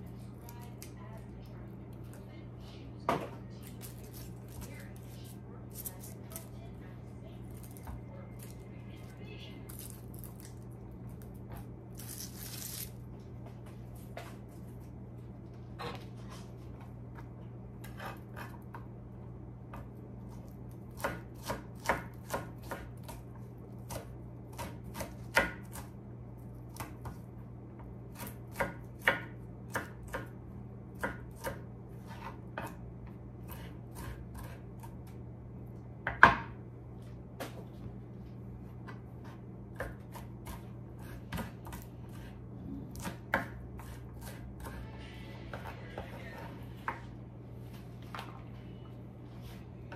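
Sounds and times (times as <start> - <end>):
steady low hum: 0.0 - 49.9
knife chopping on wooden board: 20.9 - 25.9, 28.1 - 30.4, 31.0 - 32.8, 33.4 - 35.1, 36.0 - 36.6, 38.9 - 44.8.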